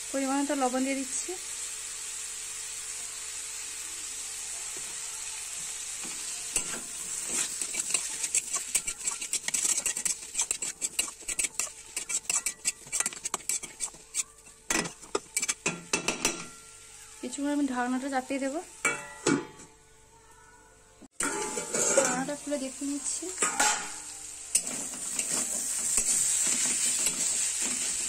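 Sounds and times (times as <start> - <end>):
food sizzling in a pan: 0.0 - 19.8, 21.1 - 28.0
spatula scraping a pan: 6.0 - 16.6, 21.2 - 22.4, 23.3 - 28.0.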